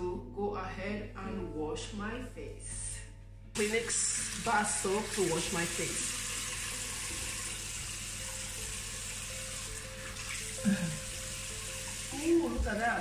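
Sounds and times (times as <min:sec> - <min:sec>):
tap water running into sink: 0:03.6 - 0:13.0.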